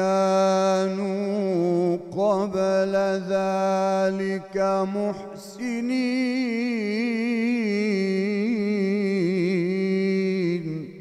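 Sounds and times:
man chanting melodically: 0.0s - 11.0s
voice echo: 0.0s - 11.0s.

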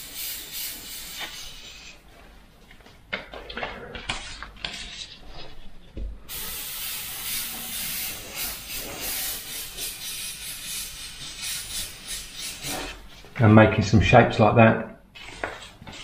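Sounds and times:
airbrush spraying hiss: 0.0s - 2.0s, 6.3s - 13.2s.

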